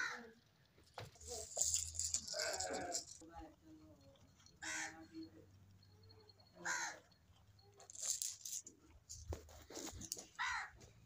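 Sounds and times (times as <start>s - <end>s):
crow cawing: 4.6s - 5.0s, 6.6s - 7.0s, 10.4s - 10.7s.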